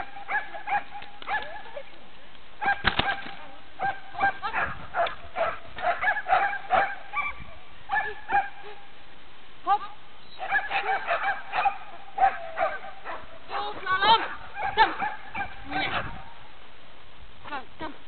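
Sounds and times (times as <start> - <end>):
dog barking high-pitched: 0.0 - 1.6, 2.6 - 3.2, 3.8 - 8.6, 10.4 - 13.3, 14.0 - 16.2.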